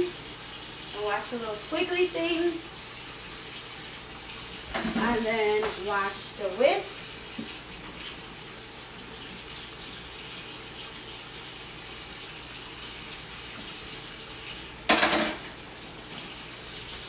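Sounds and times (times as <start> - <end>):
tap water running into sink: 0.0 - 17.0.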